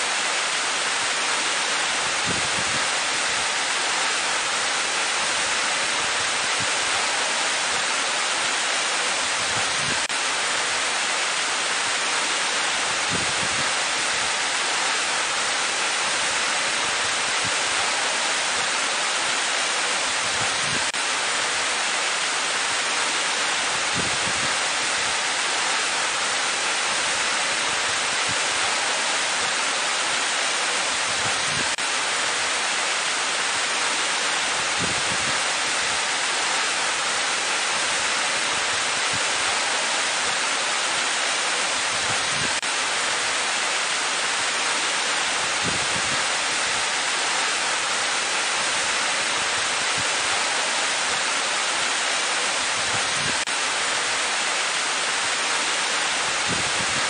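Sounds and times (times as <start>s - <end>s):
waterfall rushing into a pool: 0.0s - 57.0s.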